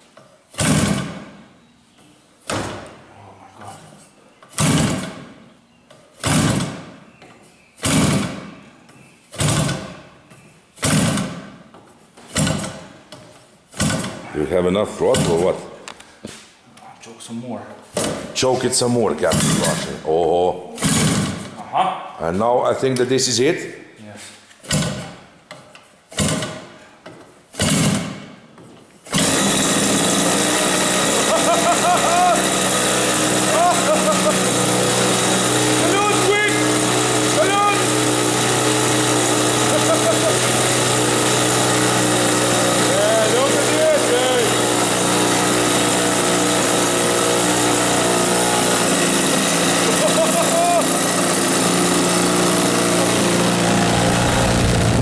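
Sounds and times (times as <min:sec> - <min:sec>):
engine turning over without catching: 0:00.5 - 0:01.4, 0:04.5 - 0:05.4, 0:06.2 - 0:07.0, 0:07.8 - 0:08.5, 0:09.4 - 0:10.0, 0:10.8 - 0:11.6, 0:12.3 - 0:13.0, 0:13.7 - 0:15.6, 0:19.1 - 0:20.0, 0:20.8 - 0:21.6, 0:27.5 - 0:28.4, 0:29.0 - 0:55.0.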